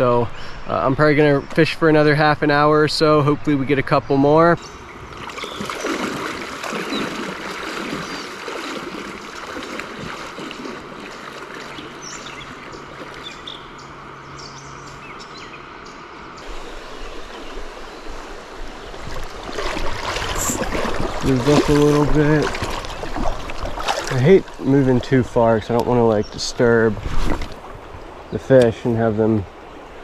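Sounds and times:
person wading through water: 4.8s - 14.3s, 16.4s - 28.3s
creek water running over rocks: 5.0s - 14.2s, 16.0s - 30.0s.

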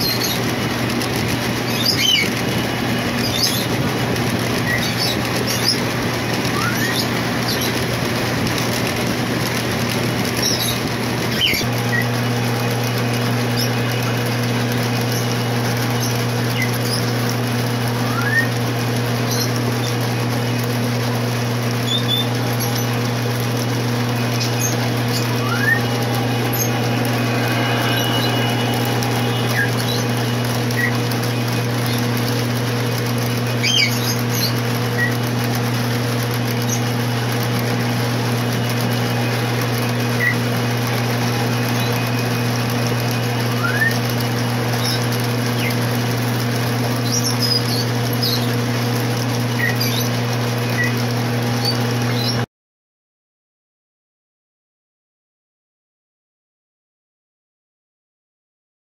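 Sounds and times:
model train rolling and humming: 0.0s - 52.4s
short high squeaks: 4.5s - 7.9s, 24.2s - 32.6s, 36.5s - 45.9s.

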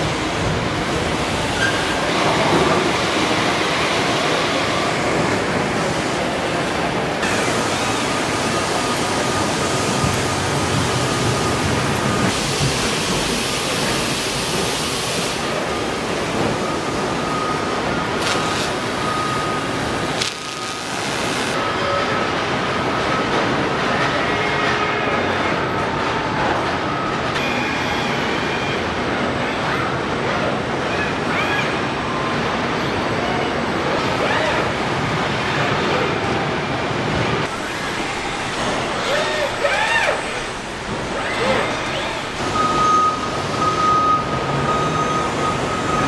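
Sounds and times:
rush of factory machinery: 0.0s - 21.7s.

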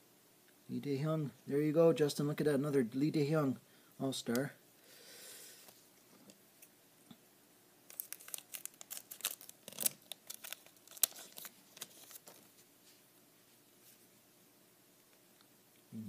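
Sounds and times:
card pack wrapper tearing: 7.9s - 12.5s.

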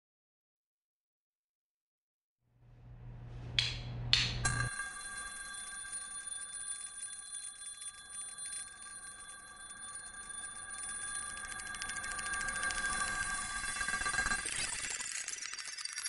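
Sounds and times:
shimmering electronic bell tone: 4.4s - 16.0s.

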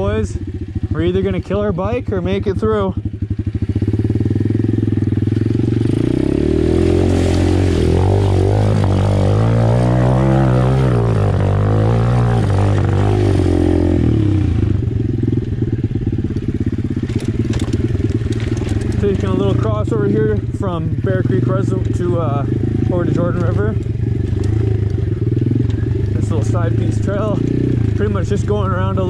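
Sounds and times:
motorbike engine revving: 0.0s - 29.0s
water splashing: 5.6s - 11.1s.

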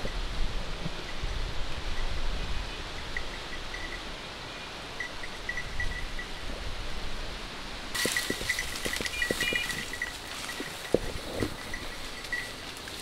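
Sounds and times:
dry brush and leaves rustling: 7.9s - 13.0s.

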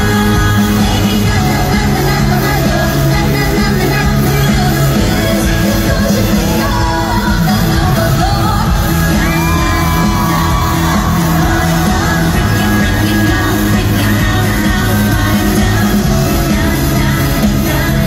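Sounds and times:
live pop music: 0.0s - 18.0s
person singing: 0.0s - 18.0s
audience shouting and whooping: 6.3s - 15.2s.

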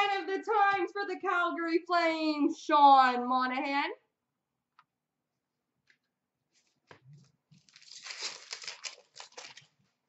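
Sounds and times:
wrapper tearing and crinkling: 7.5s - 9.8s.

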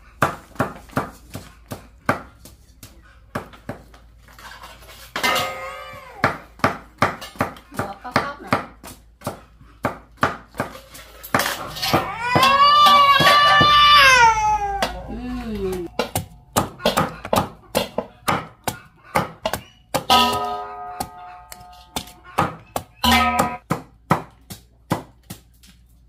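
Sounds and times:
child vocal sound: 5.6s - 6.3s, 11.9s - 15.9s
cleaver chopping on wooden block: 16.0s - 25.4s.

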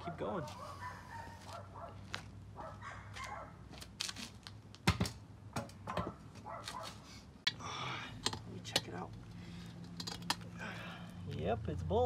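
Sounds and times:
metal car parts clicking: 8.2s - 10.6s.

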